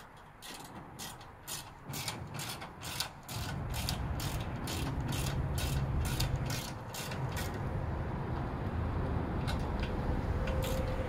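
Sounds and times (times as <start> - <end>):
hand ratchet clicking: 0.0 - 7.6
low steady rumble: 3.3 - 11.0.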